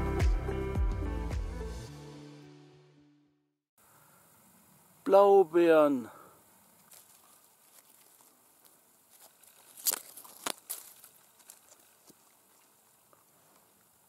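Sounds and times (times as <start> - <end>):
rustling of bushes: 3.8 - 14.0
crisp snaps and crackles: 6.8 - 12.2.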